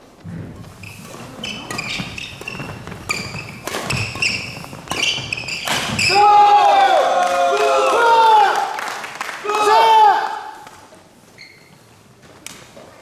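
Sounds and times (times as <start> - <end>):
shoes squeaking on wooden floor: 0.0 - 6.6, 10.9 - 13.0
rackets hitting shuttlecock: 0.9 - 6.1.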